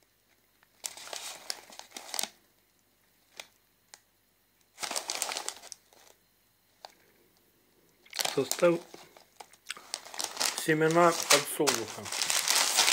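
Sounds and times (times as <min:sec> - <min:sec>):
foil snack bag crinkling: 0:00.8 - 0:02.4, 0:04.8 - 0:06.2, 0:08.1 - 0:12.9.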